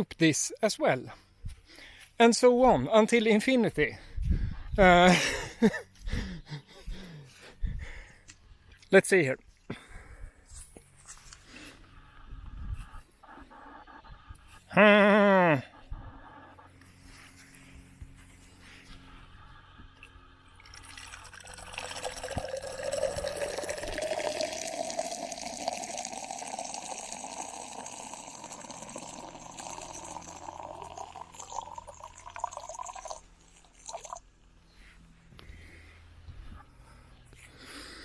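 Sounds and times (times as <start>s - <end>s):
urine stream filling a glass jar: 20.6s - 34.2s.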